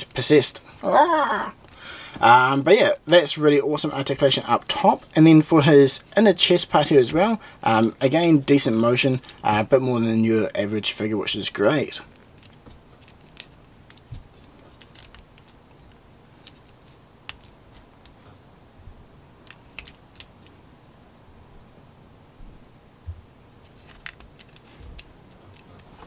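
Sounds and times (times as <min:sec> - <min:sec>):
handling plastic figure: 0:12.1 - 0:18.2, 0:19.4 - 0:20.6, 0:23.6 - 0:26.0.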